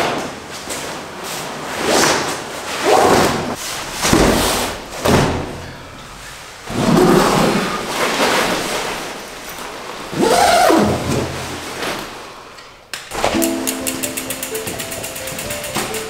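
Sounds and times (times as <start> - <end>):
sleeping bag rustling and swishing: 6.7 - 12.2.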